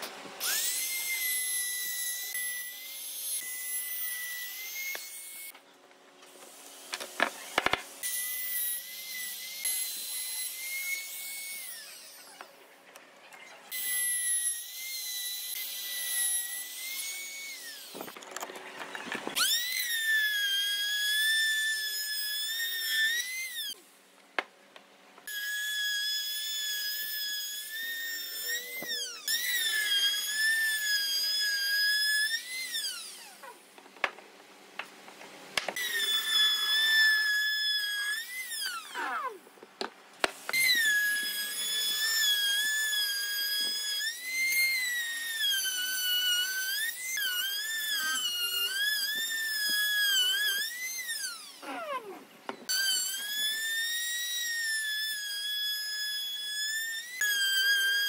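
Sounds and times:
trim router whining cutting wood: 0.0 - 5.6, 25.3 - 33.6, 35.7 - 39.4, 40.3 - 58.0.

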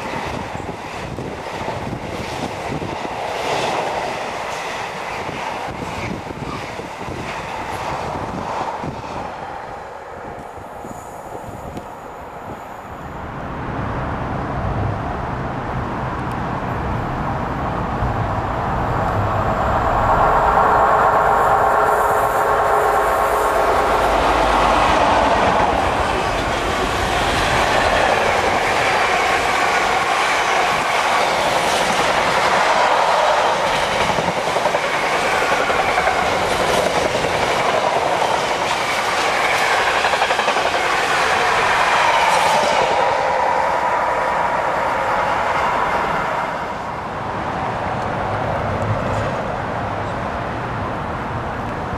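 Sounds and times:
clickety-clack over rail joints: 0.0 - 9.4, 24.7 - 43.1, 48.0 - 50.2
train wheel rumble: 0.0 - 51.9.

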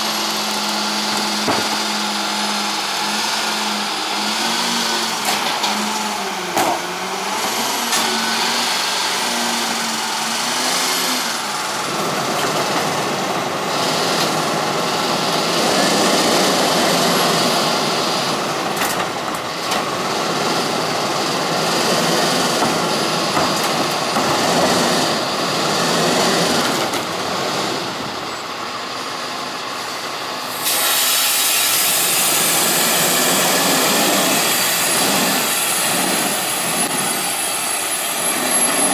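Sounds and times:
garbage truck diesel engine: 0.0 - 38.9
wavering hydraulic whine: 27.4 - 38.9.

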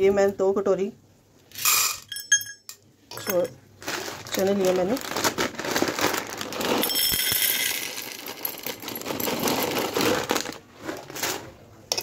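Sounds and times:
dry chickpeas rattling into steel bowl: 3.8 - 11.5.

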